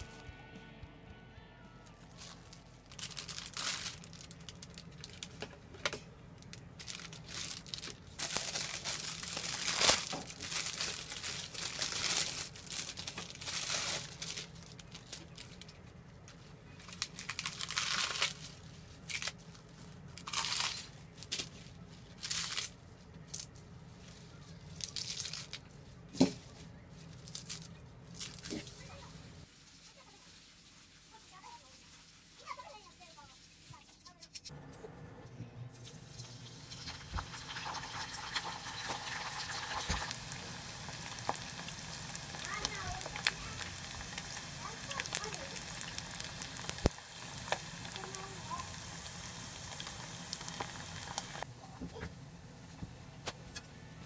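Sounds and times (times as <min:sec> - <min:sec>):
leaves rustling in metal colander: 0:02.0 - 0:05.4, 0:06.8 - 0:33.2, 0:37.4 - 0:51.5
plastic bag crinkling: 0:02.1 - 0:05.5, 0:06.4 - 0:29.0, 0:37.6 - 0:51.5
lettuce leaves tearing: 0:07.2 - 0:15.4, 0:17.0 - 0:19.4.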